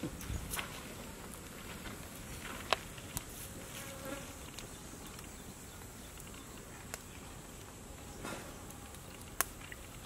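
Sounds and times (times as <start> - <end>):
flying insect buzzing: 3.6 - 4.5.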